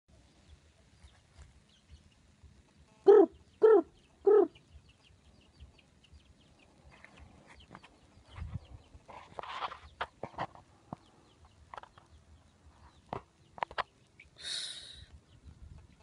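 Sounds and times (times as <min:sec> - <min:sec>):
animal calling loudly: 0:03.0 - 0:04.6.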